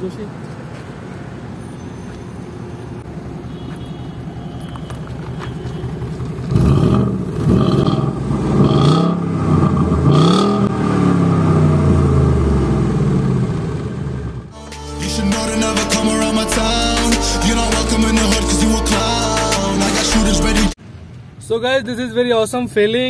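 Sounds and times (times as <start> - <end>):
car engine idling and revving: 4.6 - 14.6.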